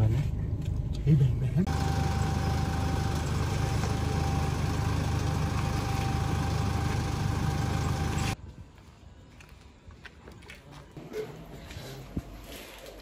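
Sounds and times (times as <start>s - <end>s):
engine drone: 0.1s - 8.4s.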